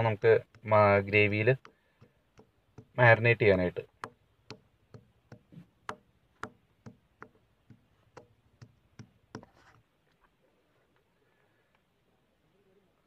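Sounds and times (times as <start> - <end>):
stone pestle pounding in a mortar: 1.5 - 3.1, 3.9 - 9.5.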